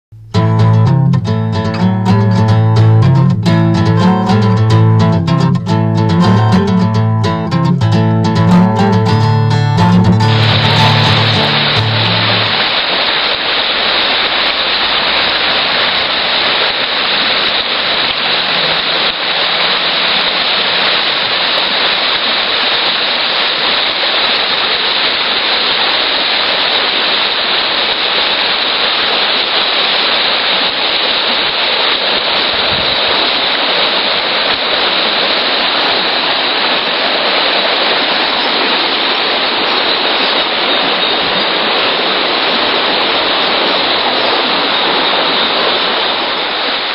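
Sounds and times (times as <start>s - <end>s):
river rushing over stones: 9.8s - 46.9s.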